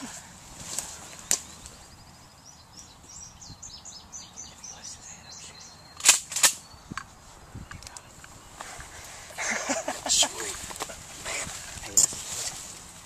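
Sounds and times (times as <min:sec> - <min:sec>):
songbird singing: 0:00.0 - 0:13.0
sharp crack: 0:06.0 - 0:06.7.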